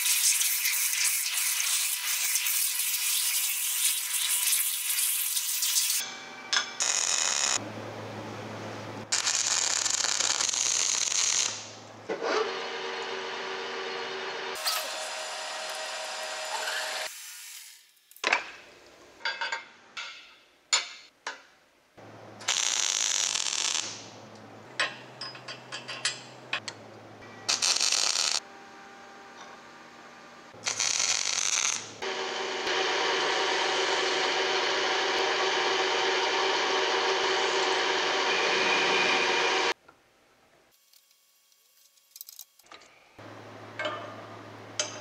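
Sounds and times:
crackling mig welding: 0.0 - 6.0, 6.8 - 7.6, 9.1 - 11.8, 22.4 - 24.2, 27.5 - 28.4, 30.6 - 32.8
lathe with abrasive strip: 32.0 - 39.8.

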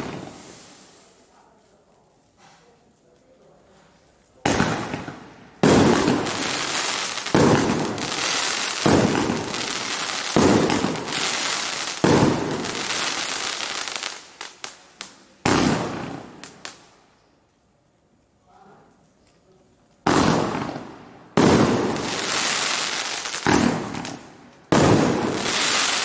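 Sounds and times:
fireworks bursts: 0.0 - 1.4, 4.4 - 16.9, 20.0 - 26.0
fireworks crackle: 0.0 - 26.0.

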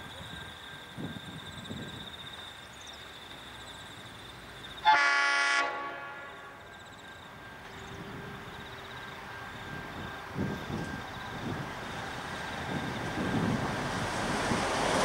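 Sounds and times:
diesel locomotive horn blast: 4.8 - 6.7.

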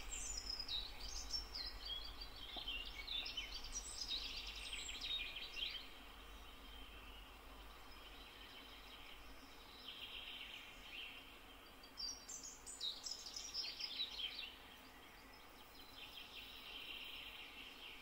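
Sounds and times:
songbird chirping and trilling: 0.0 - 18.0
steady background hiss: 0.0 - 18.0.

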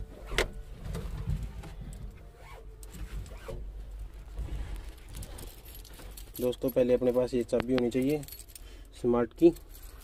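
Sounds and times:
cloth curtain rustling: 2.3 - 6.5.

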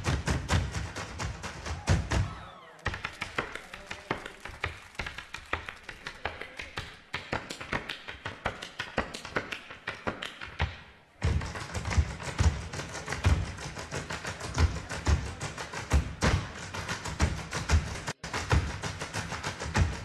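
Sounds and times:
music with tapping beat: 5.0 - 20.0.

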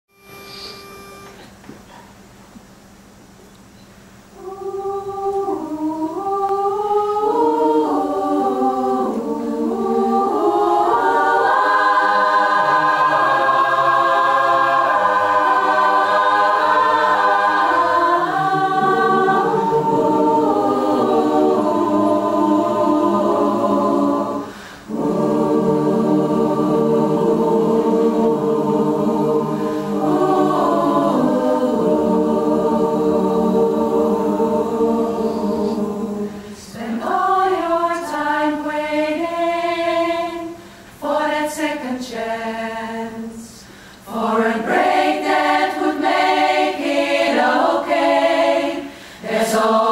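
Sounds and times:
mixed choir singing a cappella: 4.4 - 49.9.

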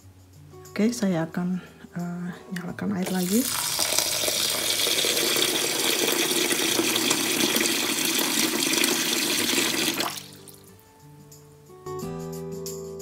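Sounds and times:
faint acoustic guitar music: 0.0 - 3.5, 10.2 - 13.0
tap water running into bowl: 3.0 - 10.6.

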